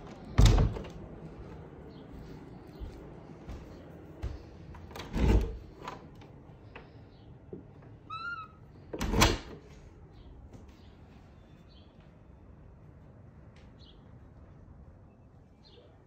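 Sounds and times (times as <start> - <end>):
door rattle: 0.0 - 1.0, 4.9 - 6.3, 8.9 - 9.7
door hinge squeak: 8.0 - 9.4.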